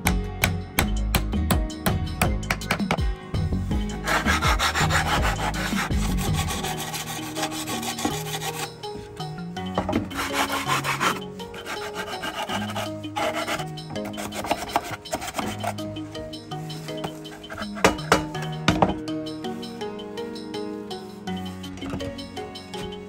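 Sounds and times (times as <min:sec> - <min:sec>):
background music: 0:00.0 - 0:23.0
sandpaper rubbing on wood: 0:03.9 - 0:08.7, 0:10.2 - 0:15.8.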